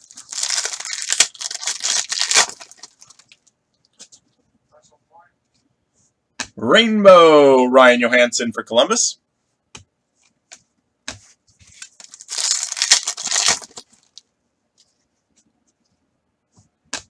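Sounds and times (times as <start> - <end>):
wrapper tearing: 0.0 - 3.4, 11.9 - 14.2.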